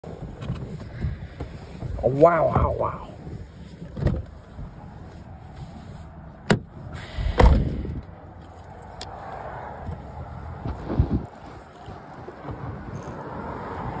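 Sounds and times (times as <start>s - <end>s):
wind noise on microphone: 0.0s - 14.0s
heavy thump: 7.3s - 8.0s.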